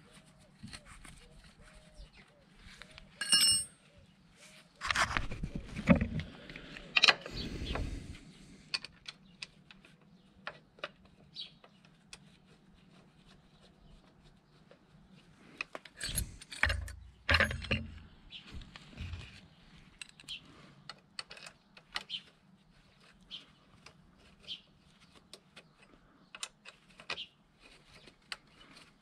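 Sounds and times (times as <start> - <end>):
metal tools clinking on metal: 3.2 - 3.8, 16.0 - 18.0.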